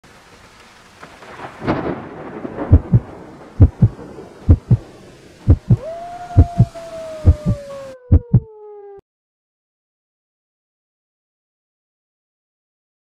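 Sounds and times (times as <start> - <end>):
rumbling swell: 2.3 - 8.4
steady sinking tone: 2.7 - 3.0, 3.6 - 3.9, 4.5 - 4.8, 5.4 - 8.9
heartbeat thumps: 2.7 - 4.8, 5.5 - 5.8, 6.4 - 6.7, 7.3 - 8.5.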